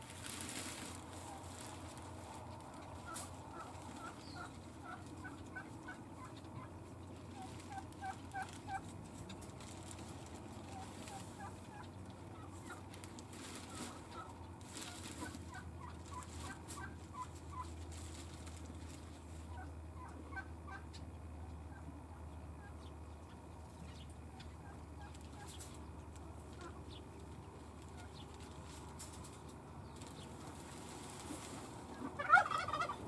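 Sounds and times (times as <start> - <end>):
plastic bag rustling: 0.0 - 4.2, 7.2 - 11.4, 12.9 - 16.8, 17.6 - 19.4.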